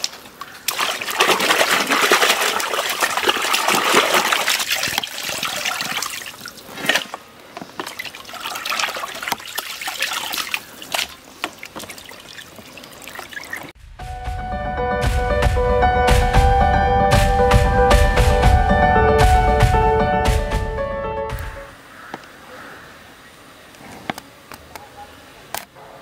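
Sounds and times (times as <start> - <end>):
water splashing in tub: 0.0 - 13.8
music: 13.8 - 21.8.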